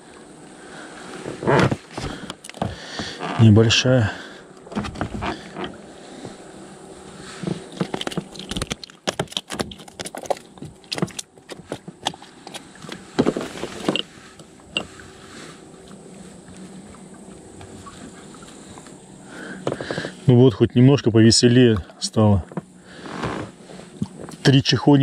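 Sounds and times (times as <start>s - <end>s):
faint steady hiss: 0.0s - 9.1s, 12.0s - 25.0s
fishing tackle clicks and rattles: 7.7s - 14.1s.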